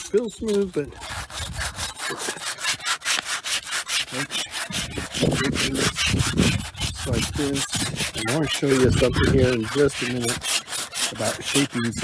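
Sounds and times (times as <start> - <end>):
sandpaper scratching: 0.0 - 12.0.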